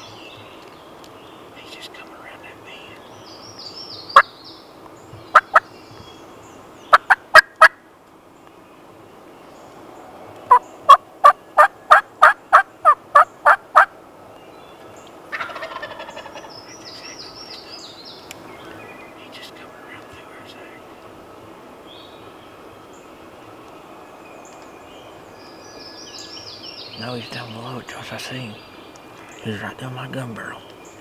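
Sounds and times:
turkey rattling call: 0:05.3 - 0:05.6, 0:06.9 - 0:07.8, 0:10.5 - 0:13.9, 0:15.3 - 0:17.6
wild turkey yelps: 0:15.3 - 0:16.8.

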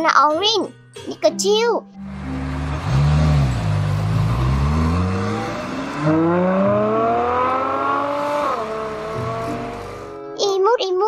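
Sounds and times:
sports car engine accelerating: 0:02.0 - 0:10.2.

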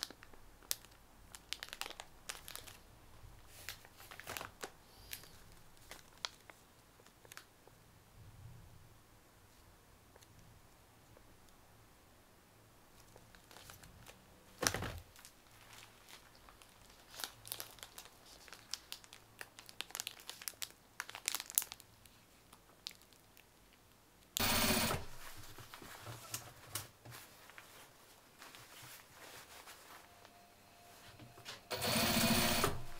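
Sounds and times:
packaging tearing: 0:00.0 - 0:02.8, 0:03.5 - 0:06.5, 0:13.3 - 0:21.8
wrappers crinkling: 0:00.0 - 0:07.5, 0:13.0 - 0:23.5.

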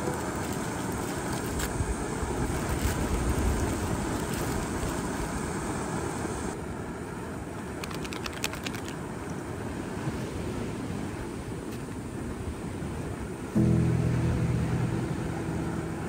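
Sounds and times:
sharp clicks: 0:07.8 - 0:09.0.

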